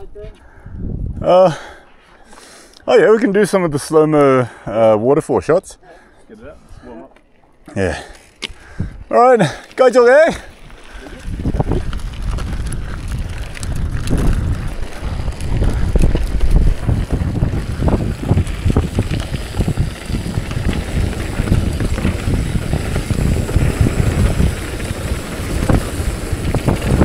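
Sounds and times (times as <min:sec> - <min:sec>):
wind noise on microphone: 0:00.0 - 0:01.4, 0:08.5 - 0:09.1, 0:10.5 - 0:27.0
bike knocking and rattling: 0:08.2 - 0:27.0.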